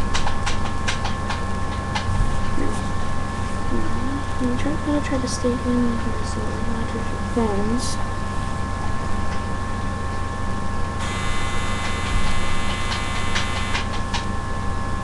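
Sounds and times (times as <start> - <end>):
low electrical hum: 0.0 - 15.0
faint whine tones: 11.0 - 14.7.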